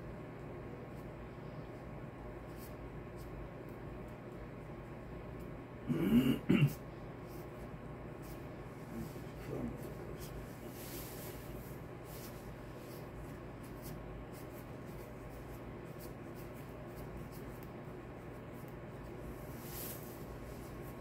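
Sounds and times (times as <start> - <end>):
fingers braiding hair: 7.1 - 21.0.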